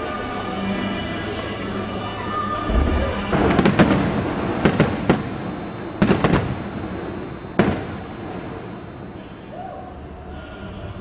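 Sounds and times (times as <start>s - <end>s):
fireworks bursting bangs: 2.6s - 9.3s
low thud: 2.7s - 4.9s.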